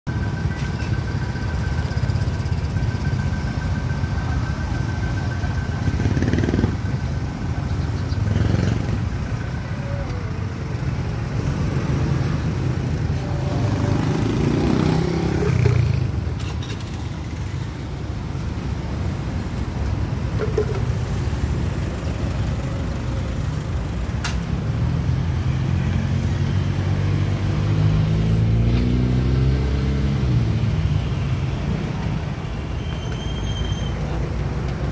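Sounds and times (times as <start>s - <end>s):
motorbike and car engines passing: 0.2s - 34.9s.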